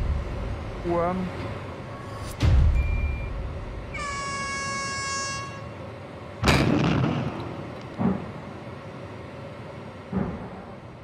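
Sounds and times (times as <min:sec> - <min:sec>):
horn blast: 0:03.9 - 0:05.8
explosive demolition bangs: 0:06.4 - 0:08.4.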